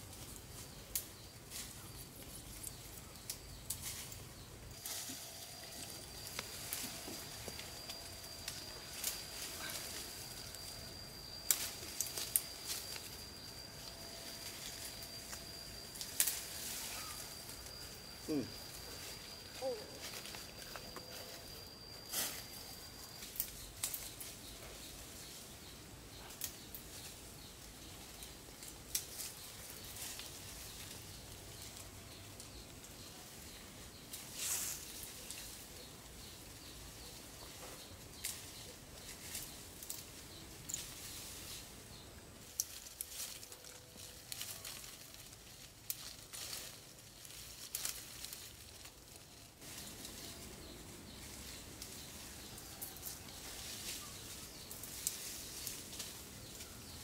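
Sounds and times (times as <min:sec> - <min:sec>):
outdoor background noise: 0:00.0 - 0:57.0
twigs and leaves snapping: 0:02.5 - 0:17.5, 0:23.1 - 0:24.6, 0:28.6 - 0:31.0, 0:42.4 - 0:50.4.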